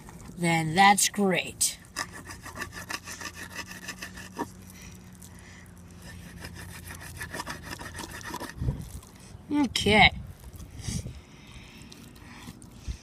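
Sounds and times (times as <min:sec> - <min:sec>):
knife sawing through fish: 0:01.9 - 0:04.5, 0:06.0 - 0:08.7.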